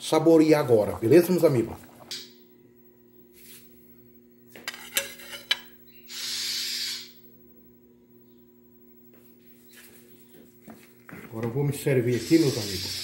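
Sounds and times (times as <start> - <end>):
steady low hum: 0.0 - 13.0
metal cookware clinking: 4.7 - 5.6
hiss: 12.2 - 13.0.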